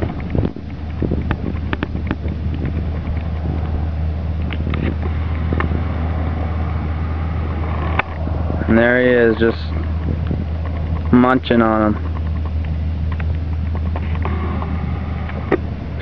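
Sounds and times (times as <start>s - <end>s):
faint clicks and taps: 0.0s - 3.8s, 9.4s - 15.6s
vehicle engine idling: 0.0s - 16.0s.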